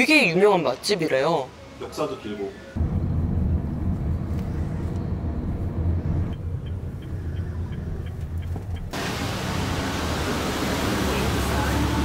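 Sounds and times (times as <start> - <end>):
turn signal ticking: 6.0 - 9.0.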